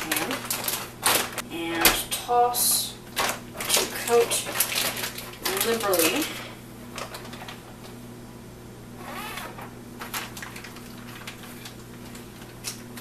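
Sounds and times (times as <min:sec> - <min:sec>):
plastic bag rustling and crinkling: 0:00.0 - 0:02.0, 0:03.1 - 0:07.9, 0:09.5 - 0:13.0
steady low hum: 0:00.0 - 0:13.0.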